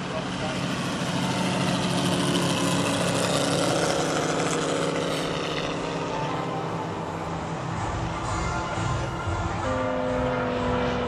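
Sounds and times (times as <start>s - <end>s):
model airplane propeller drone: 0.0s - 8.0s.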